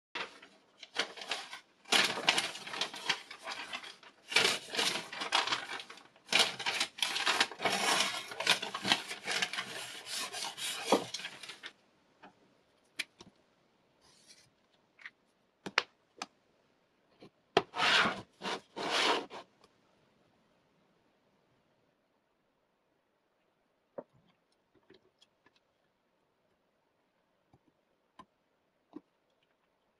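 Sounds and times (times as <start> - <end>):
paper wrapping rustling: 0.2 - 11.8.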